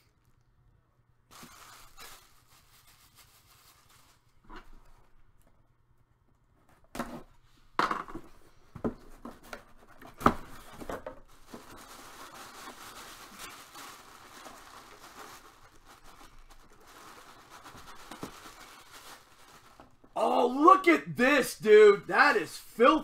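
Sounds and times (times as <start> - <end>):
tissue paper rustling: 1.3 - 4.4, 10.5 - 20.0.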